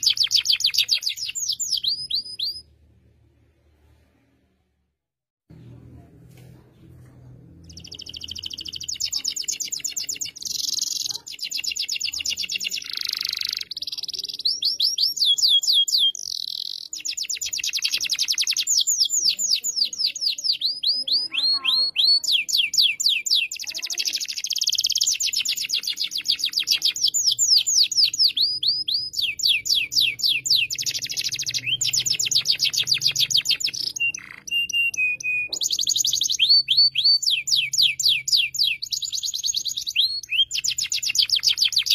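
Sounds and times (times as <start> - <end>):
canary trilling song: 0.0 - 3.0, 7.5 - 41.9.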